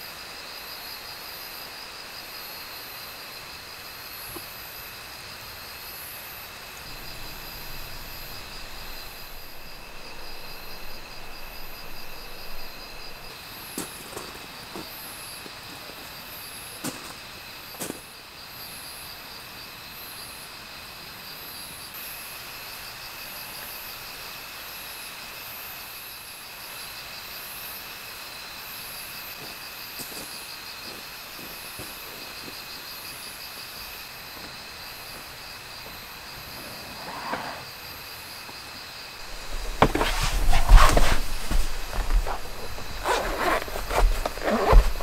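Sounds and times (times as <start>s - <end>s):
insects chirping and trilling: 0.0s - 45.0s
knocks and handling clatter: 39.2s - 45.0s.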